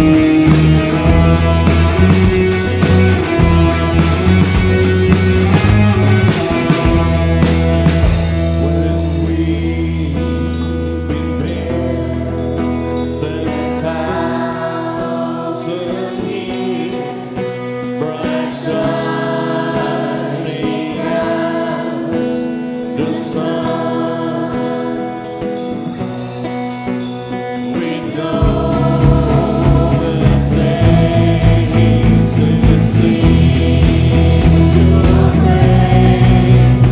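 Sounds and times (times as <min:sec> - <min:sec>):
held low bass note: 0:00.0 - 0:11.1
lead and backing singers: 0:00.0 - 0:36.9
worship band playing gospel song: 0:00.0 - 0:36.9.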